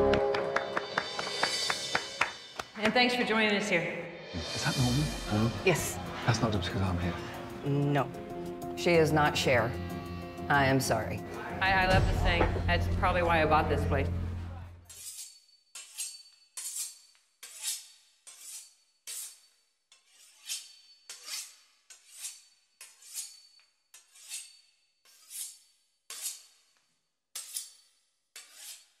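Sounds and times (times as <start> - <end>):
knife sawing through crisp pastry: 14.9 - 29.0.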